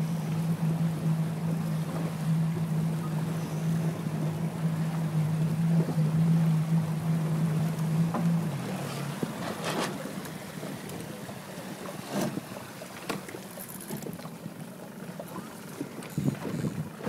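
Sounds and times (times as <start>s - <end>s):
faint low engine hum: 0.0s - 17.0s
water slapping against hull: 0.0s - 17.0s
wind on microphone: 16.0s - 17.0s.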